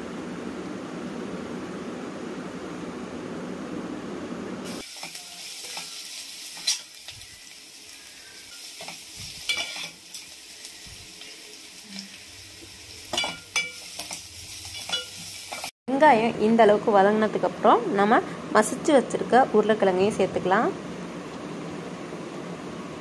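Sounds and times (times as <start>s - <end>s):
onions sizzling in oil: 4.6s - 15.7s
metal spoon scraping a pan: 5.0s - 7.1s, 8.4s - 10.3s, 13.0s - 15.7s.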